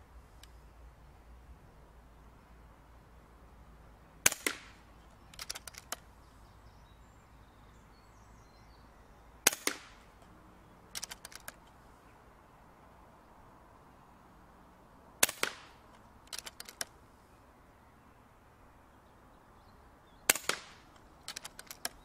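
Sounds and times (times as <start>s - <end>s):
air rifle shot crack: 4.2s - 4.8s, 9.4s - 10.1s, 15.2s - 16.5s, 20.3s - 21.6s
cocking lever clicks: 5.3s - 6.0s, 10.9s - 11.8s, 15.4s - 16.9s, 20.4s - 22.0s.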